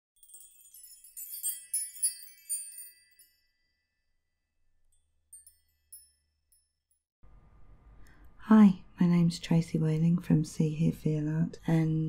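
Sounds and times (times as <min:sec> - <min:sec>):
high tinkling chimes: 0:00.2 - 0:07.0.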